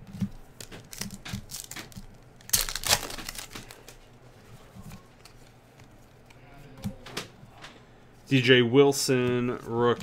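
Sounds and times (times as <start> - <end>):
foil wrapper crinkling and tearing: 0.8 - 4.0.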